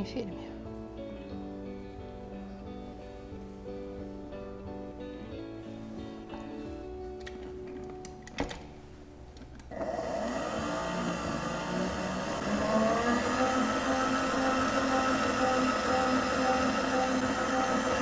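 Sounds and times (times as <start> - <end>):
stand mixer motor whining: 9.7 - 18.0.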